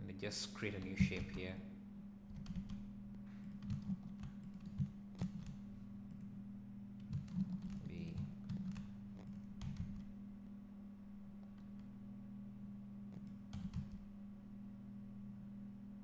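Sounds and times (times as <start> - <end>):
steady low hum: 0.0 - 16.0
computer keyboard keys tapping: 0.8 - 1.6, 2.3 - 6.3, 7.0 - 10.1, 13.1 - 14.0.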